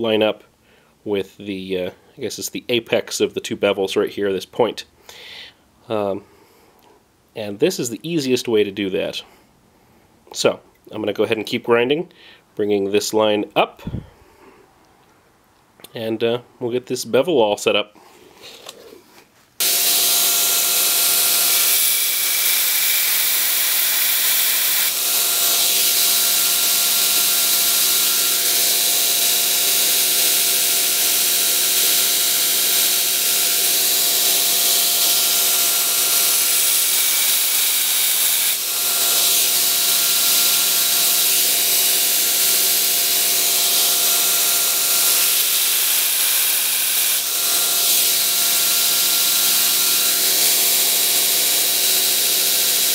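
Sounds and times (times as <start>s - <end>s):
belt grinder grinding steel: 19.6s - 52.9s.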